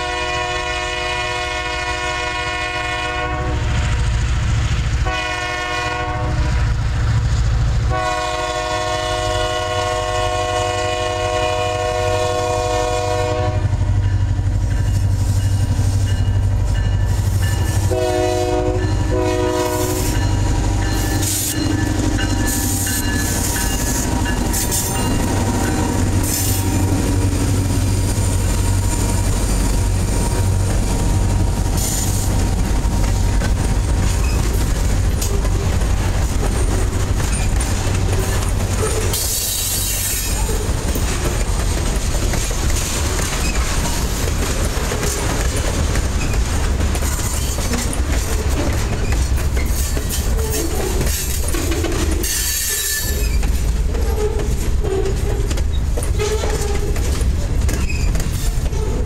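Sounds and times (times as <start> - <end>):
locomotive air horn blasts: 0.0 - 3.8, 5.0 - 6.7, 7.9 - 13.8, 17.8 - 20.2
locomotive engine rumble: 0.0 - 59.0
train wheels clicking and rattling: 13.3 - 59.0.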